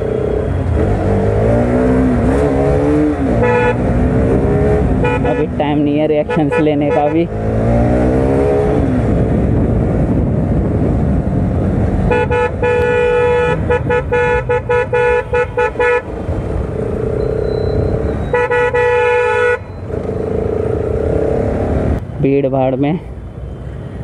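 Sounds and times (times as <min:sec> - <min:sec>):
motorcycle engine rumble: 0:00.0 - 0:24.0
vehicle horn honking: 0:03.3 - 0:03.9, 0:05.0 - 0:05.6, 0:06.2 - 0:07.2, 0:12.1 - 0:16.1, 0:17.5 - 0:19.7.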